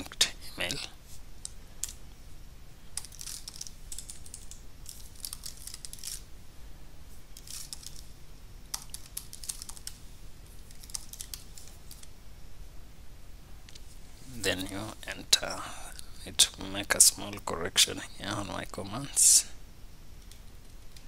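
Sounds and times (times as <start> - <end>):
typing on computer keyboard: 3.0 - 6.2, 8.7 - 10.0, 10.7 - 12.1.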